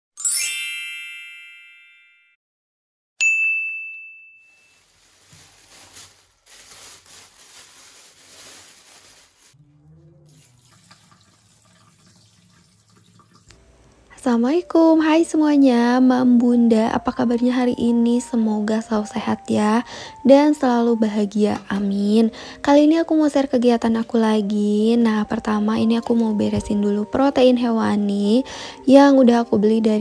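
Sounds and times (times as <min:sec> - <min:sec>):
bright many-toned chime: 0:00.2 - 0:02.4
single clear ding: 0:03.2 - 0:04.7
plastic bag rustling: 0:04.7 - 0:09.6.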